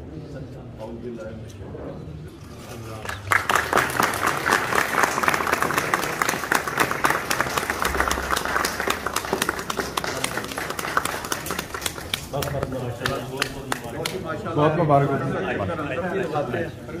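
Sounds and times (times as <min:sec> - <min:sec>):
crowd clapping: 0:02.7 - 0:14.4.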